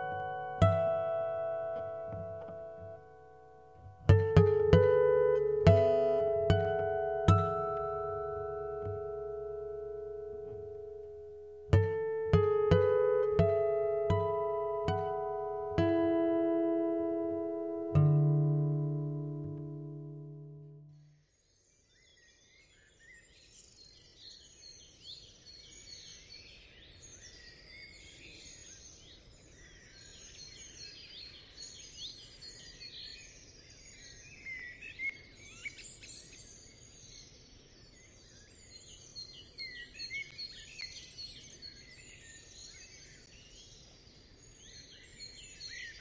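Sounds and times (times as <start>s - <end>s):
low steady hiss: 0.0s - 21.1s.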